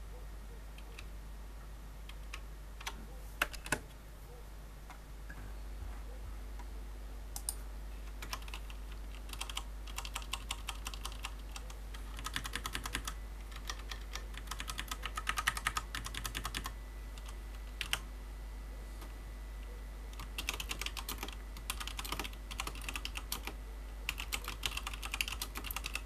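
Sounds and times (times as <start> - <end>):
typing on mechanical keyboard: 2.1 - 3.8, 8.2 - 18.0, 20.2 - 26.0.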